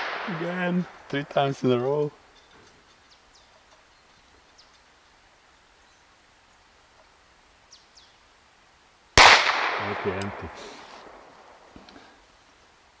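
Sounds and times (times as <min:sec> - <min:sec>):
air pistol shot: 0:00.0 - 0:00.5, 0:09.2 - 0:11.2
faint bird chirps: 0:02.2 - 0:06.8, 0:07.6 - 0:08.4.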